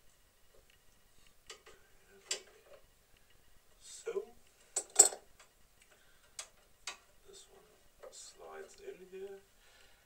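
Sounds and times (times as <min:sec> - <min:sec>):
spanner clinking on metal: 0:04.8 - 0:05.2.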